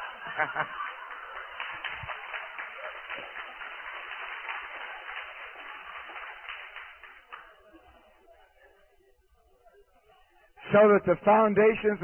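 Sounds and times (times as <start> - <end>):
crowd laughing: 0.0 - 3.8
crowd clapping: 0.0 - 7.6.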